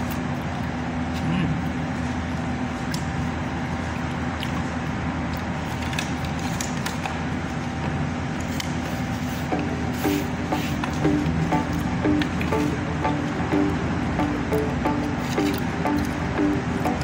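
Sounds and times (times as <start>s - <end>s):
low room hum: 0.0s - 17.0s
plucked-string music: 9.5s - 17.0s.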